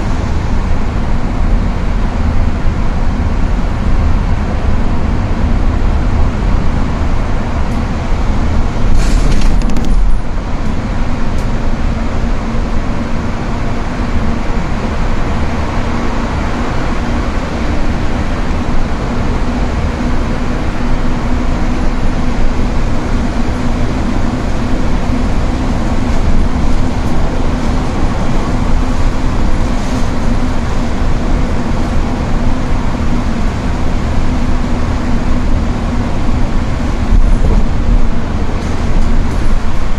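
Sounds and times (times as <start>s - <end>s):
engine drone: 0.0s - 39.9s
tyres hissing on wet road: 8.3s - 9.6s, 10.8s - 39.9s.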